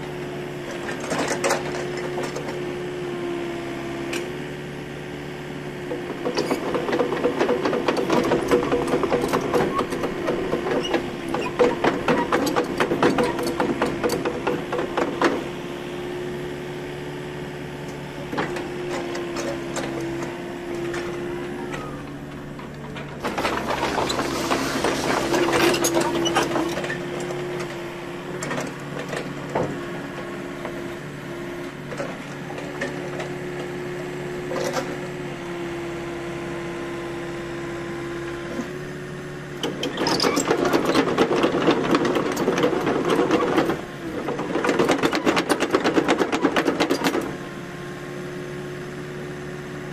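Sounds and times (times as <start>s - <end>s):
excavator diesel engine running: 0.0s - 49.9s
hydraulic whine: 17.8s - 27.7s.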